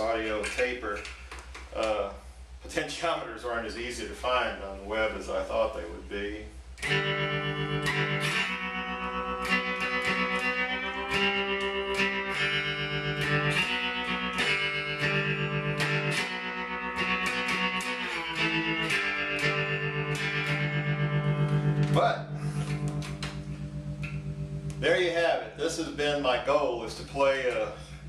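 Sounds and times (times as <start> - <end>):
amplifier mains hum: 0.0 - 28.0
electric string instrument notes: 6.8 - 26.6.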